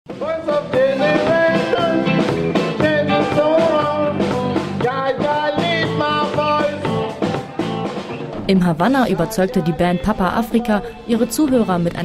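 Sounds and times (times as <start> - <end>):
man singing: 0.1 - 7.6
drum kit: 0.1 - 12.0
electric guitars: 0.1 - 12.0
electric bass: 0.2 - 8.5.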